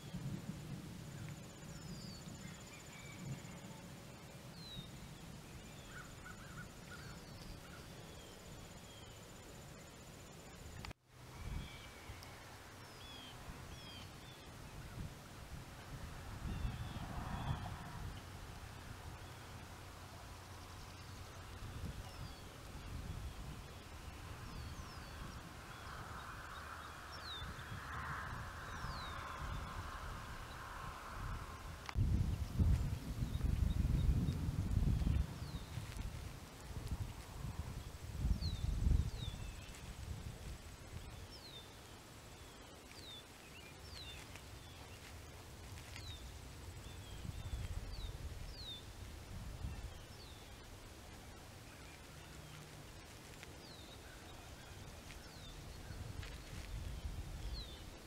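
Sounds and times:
low rumble of wind: 0.0 - 58.0.

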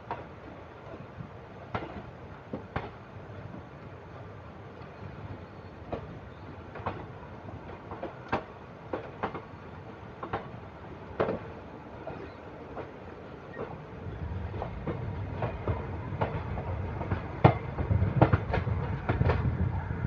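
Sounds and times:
train running rumble: 0.0 - 20.0
wheels clacking over rail joints: 4.8 - 19.7.

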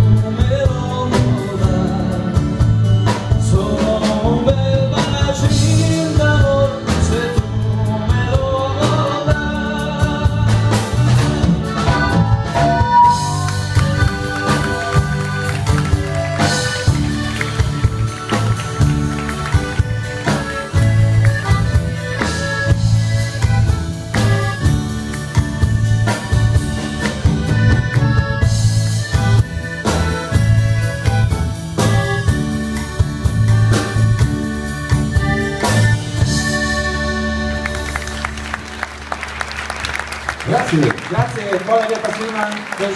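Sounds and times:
man singing: 0.0 - 13.4
drum kit beat: 0.0 - 39.0
accordion: 0.0 - 42.9
live band playing: 0.0 - 42.9.

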